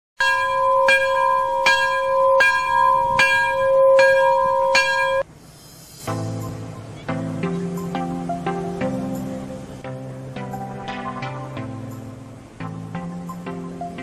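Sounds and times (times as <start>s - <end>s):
bell ringing: 0.2s - 5.2s
music: 5.7s - 14.0s.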